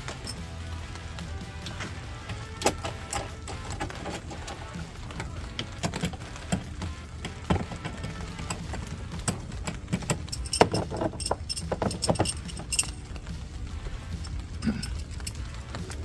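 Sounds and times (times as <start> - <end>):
metallic clinks of bolts: 0.0 - 0.5, 2.3 - 6.2, 6.9 - 13.4, 14.1 - 15.9.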